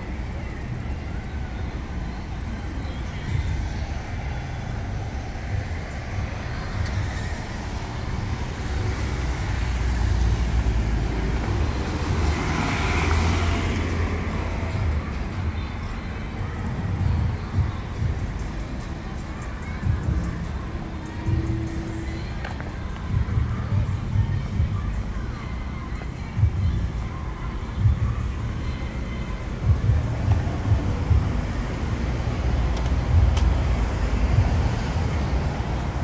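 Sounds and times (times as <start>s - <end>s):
car engine and tyre noise: 0.0s - 36.0s
cars driving past: 0.0s - 36.0s.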